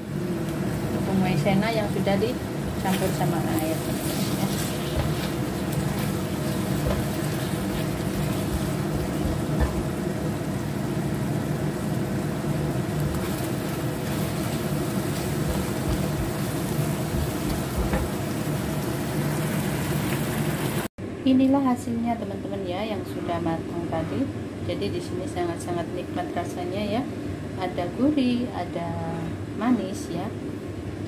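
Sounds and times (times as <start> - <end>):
low mechanical hum: 0.0 - 31.0
sauce simmering: 3.6 - 20.9
spatula scraping and tapping wok: 3.9 - 9.9.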